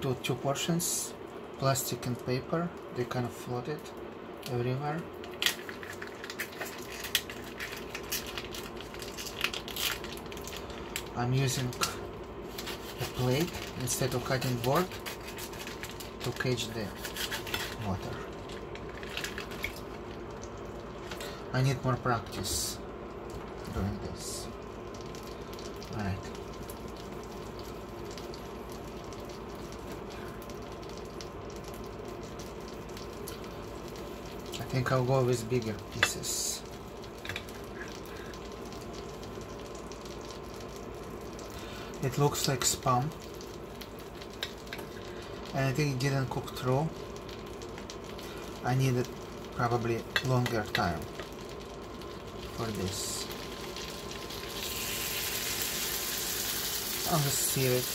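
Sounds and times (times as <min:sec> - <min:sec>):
cooling fan hum: 0:00.0 - 0:57.9
plastic packaging crackling: 0:05.2 - 0:21.3, 0:42.4 - 0:57.9.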